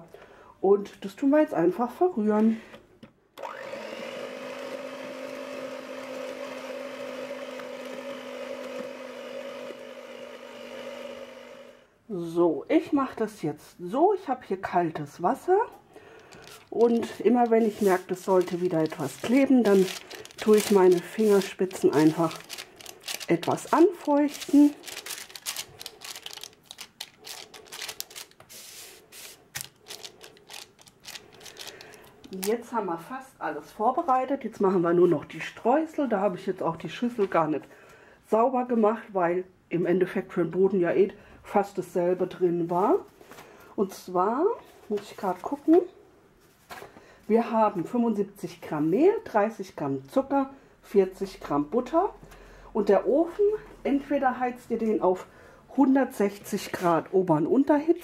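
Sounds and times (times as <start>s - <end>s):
electric hand mixer whining: 3.4s - 11.9s
paper rustling: 16.2s - 32.6s.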